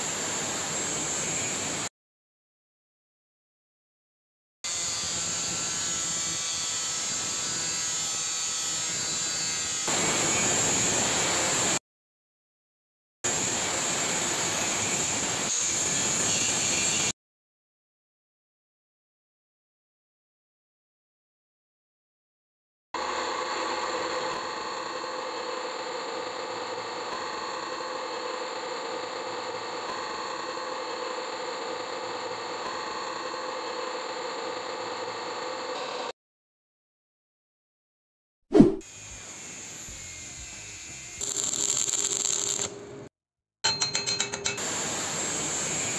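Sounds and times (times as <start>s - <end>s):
angle grinder cutting metal: 4.7s - 11.8s, 13.3s - 17.1s, 38.8s - 42.8s, 43.7s - 45.9s
drill press boring into wood: 41.2s - 42.8s.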